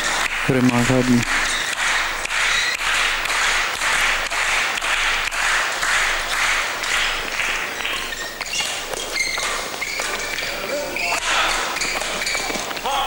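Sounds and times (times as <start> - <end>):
crowd applauding: 0.0 - 13.0
short high squeaks: 8.0 - 12.8.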